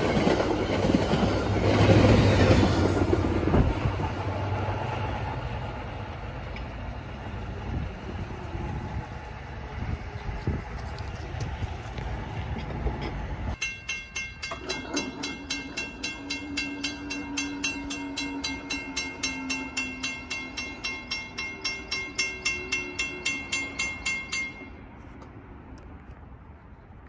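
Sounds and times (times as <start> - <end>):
railroad crossing bell ringing: 12.9 - 25.2.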